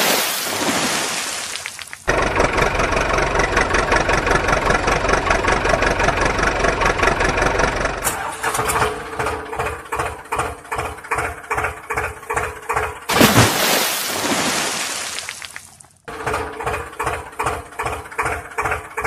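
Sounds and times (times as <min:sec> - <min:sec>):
engine rattling and chugging: 0:02.1 - 0:13.1, 0:16.0 - 0:19.0.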